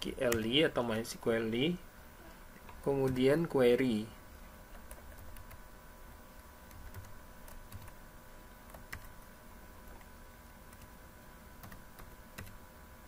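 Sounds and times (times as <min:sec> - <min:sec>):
faint electrical hum: 0:00.0 - 0:13.0
computer keyboard typing: 0:03.0 - 0:03.4, 0:04.8 - 0:05.6, 0:06.6 - 0:08.0, 0:08.6 - 0:10.1, 0:10.7 - 0:11.0, 0:11.6 - 0:12.6.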